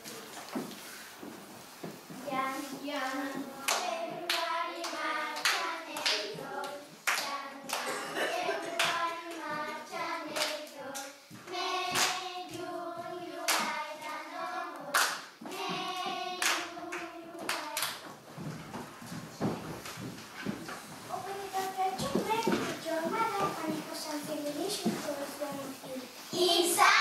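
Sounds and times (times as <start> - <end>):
children singing: 2.5 - 18.1
hand claps: 3.6 - 8.0, 8.7 - 9.7, 10.3 - 12.6, 13.4 - 14.2, 14.8 - 18.1.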